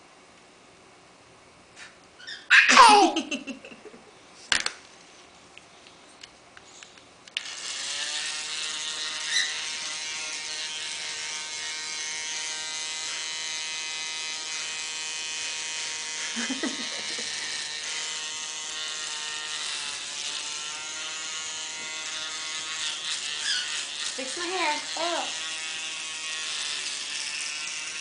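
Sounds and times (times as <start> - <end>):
toy hair dryer motor whirring: 7.4 - 28.0.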